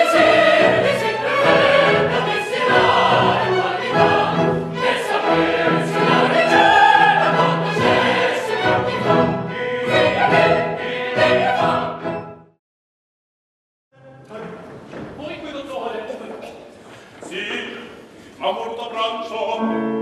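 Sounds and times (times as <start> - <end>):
opera chorus singing: 0.0 - 12.4, 17.3 - 20.0
orchestra playing: 0.0 - 12.6.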